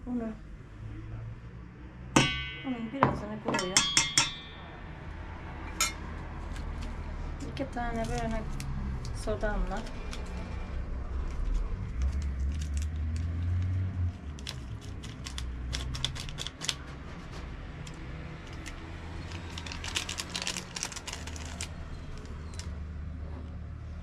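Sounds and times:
paper sachets tearing and crinkling: 9.7s - 16.8s, 18.4s - 22.7s.

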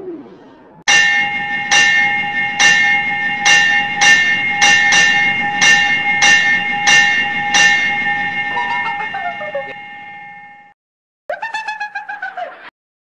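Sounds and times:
train wheels clattering: 1.0s - 9.9s.

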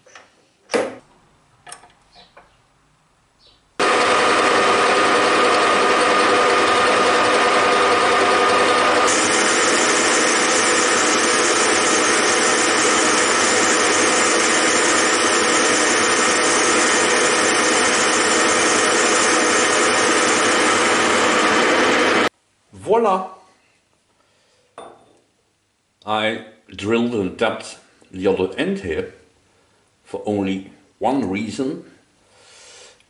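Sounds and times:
metal lathe running: 3.8s - 22.3s
high steady whine: 6.5s - 22.3s.

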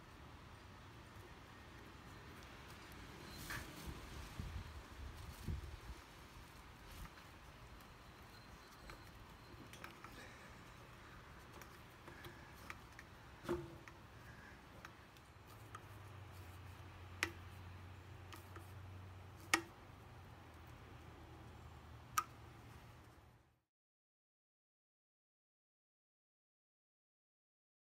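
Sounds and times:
faint handling noise: 1.1s - 20.8s.

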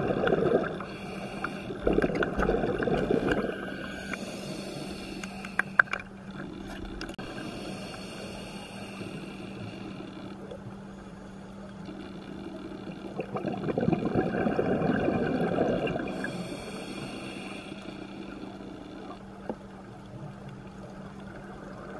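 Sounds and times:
underwater exhaled bubbles: 0.0s - 5.2s, 12.9s - 17.6s
steady low hum: 0.0s - 21.9s.

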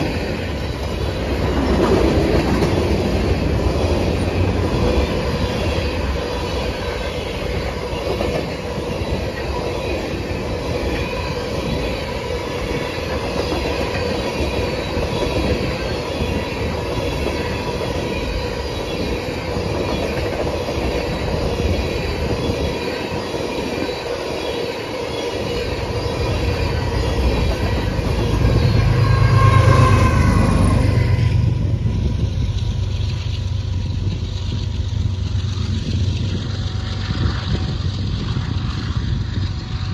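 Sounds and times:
train wheels clattering on rail: 0.0s - 39.9s
high wheel squeal: 3.2s - 32.3s
low rumble: 28.1s - 39.9s.

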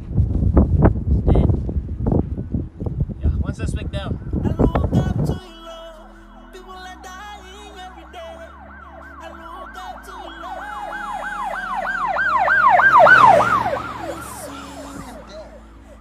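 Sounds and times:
siren yelping: 7.0s - 16.0s.

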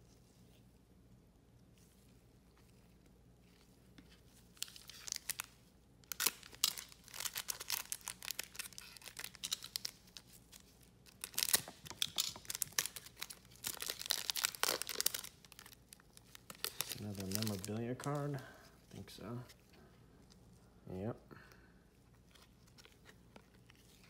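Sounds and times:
foil wrapper crinkling and tearing: 4.6s - 18.4s.

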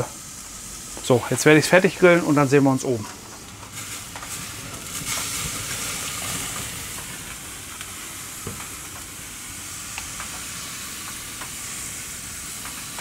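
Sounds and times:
steak sizzling on a grill: 0.0s - 13.0s
fat popping and crackling: 3.1s - 13.0s.

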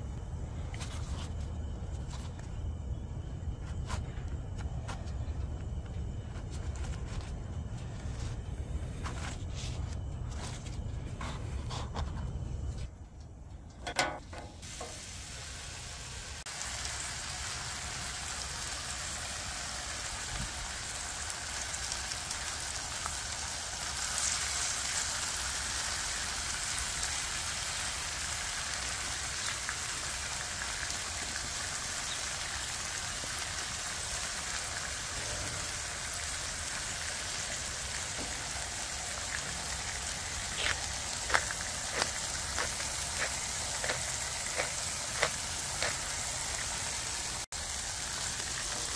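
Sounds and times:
food sizzling on a griddle: 14.4s - 48.9s.

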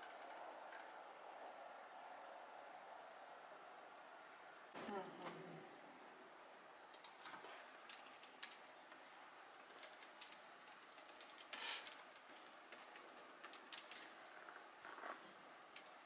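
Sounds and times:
laptop keyboard typing: 6.9s - 8.7s, 9.4s - 14.1s
keyboard clatter: 9.5s - 14.1s.

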